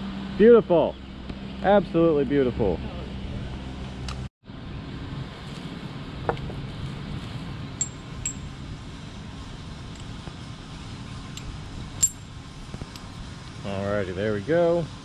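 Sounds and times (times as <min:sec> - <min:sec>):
metal climbing hardware clinking: 0:07.8 - 0:08.5, 0:11.3 - 0:12.3.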